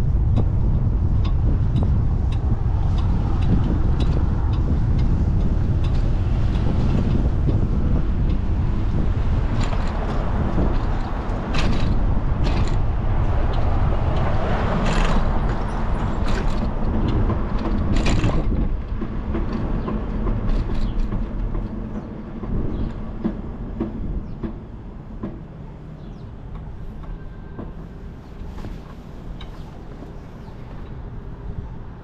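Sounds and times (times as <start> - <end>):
wind rumble on microphone: 0.0 - 32.0
bicycle knocks and rattles: 0.1 - 25.4.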